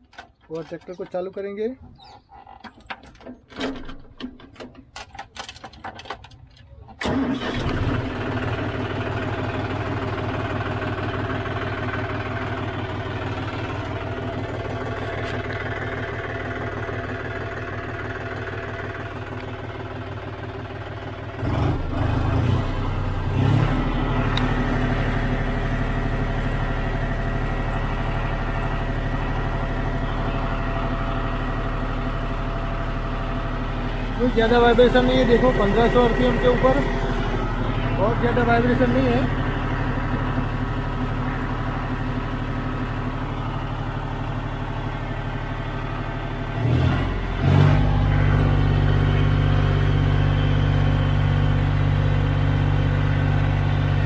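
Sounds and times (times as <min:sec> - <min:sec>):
diesel tractor engine idling: 0:00.0 - 0:54.0.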